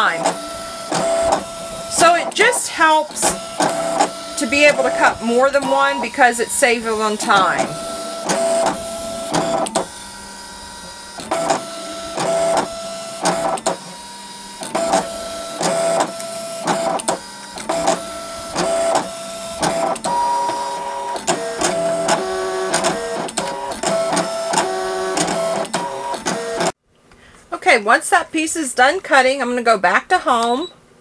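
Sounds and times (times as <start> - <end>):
cutting machine motors whirring: 0.0 - 26.8
small machine clicks: 0.2 - 4.8, 14.6 - 26.7.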